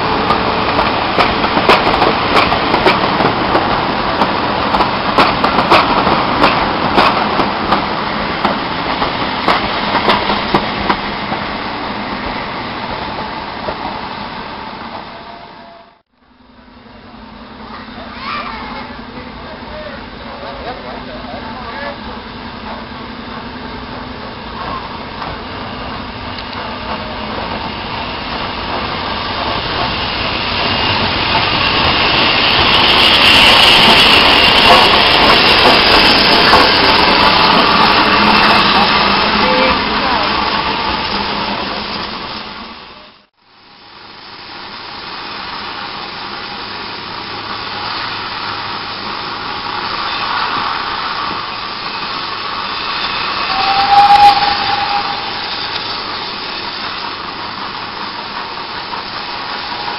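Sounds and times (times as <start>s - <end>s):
steam locomotive passing: 0.0s - 59.9s
train running with wind rush: 0.0s - 59.9s
hissing steam: 17.4s - 59.9s
steam whistle: 53.2s - 55.8s.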